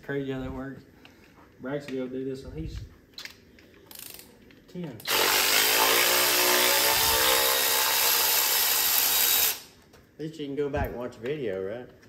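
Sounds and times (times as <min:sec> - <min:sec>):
power tool hissing and whining: 0:05.1 - 0:09.7.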